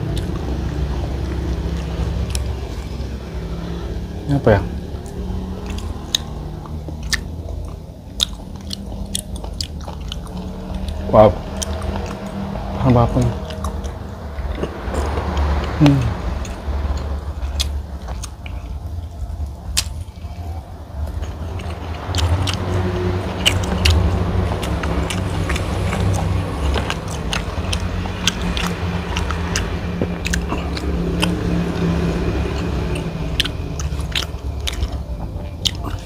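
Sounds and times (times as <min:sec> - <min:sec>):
close chewing: 0:00.0 - 0:04.2, 0:04.8 - 0:36.0
steady low rumble: 0:00.0 - 0:36.0
wet mouth clicks: 0:05.0 - 0:11.0.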